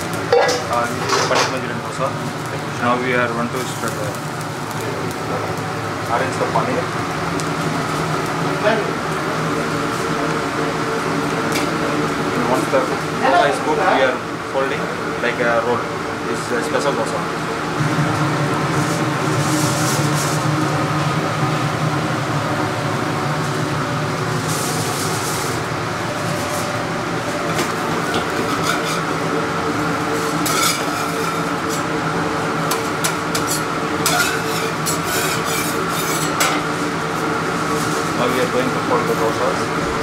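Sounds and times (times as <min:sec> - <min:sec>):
frying sizzle: 0:00.0 - 0:40.0
kitchen hum: 0:00.0 - 0:40.0
metal spatula scraping a griddle: 0:28.2 - 0:29.2, 0:30.2 - 0:31.9, 0:32.7 - 0:36.8.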